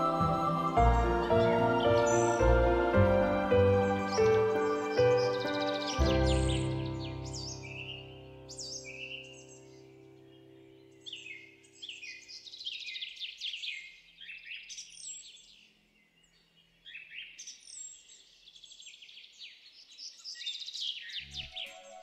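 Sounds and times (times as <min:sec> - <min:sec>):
background music: 0:00.0 - 0:10.3, 0:21.2 - 0:22.0
small birds chirping: 0:00.0 - 0:22.0.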